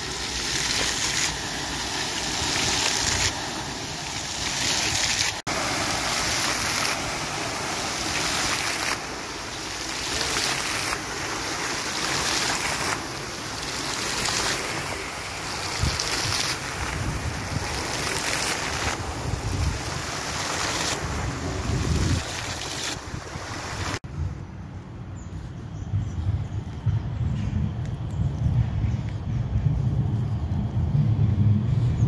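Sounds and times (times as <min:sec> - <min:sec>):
fountain water splashing: 0:00.0 - 0:24.0
wind buffeting microphone: 0:14.8 - 0:32.0.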